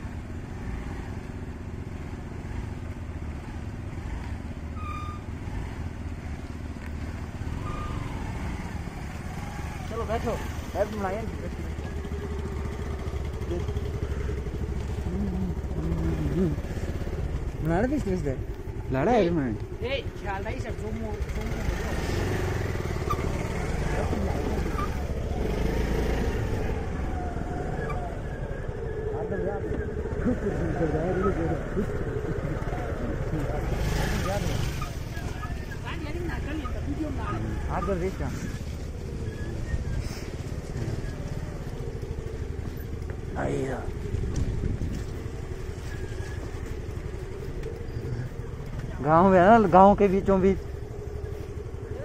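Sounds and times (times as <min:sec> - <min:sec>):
scooter engine running: 0:08.3 - 0:52.0.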